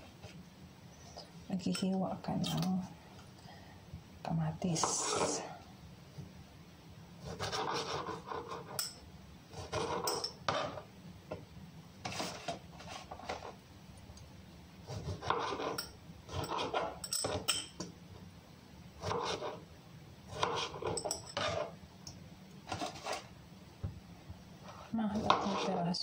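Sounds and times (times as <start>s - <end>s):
knife slicing tomato on board: 7.2s - 8.8s, 9.5s - 10.9s, 12.0s - 13.6s, 14.8s - 17.4s, 19.0s - 19.6s, 20.3s - 21.7s, 22.6s - 23.3s, 24.7s - 25.8s.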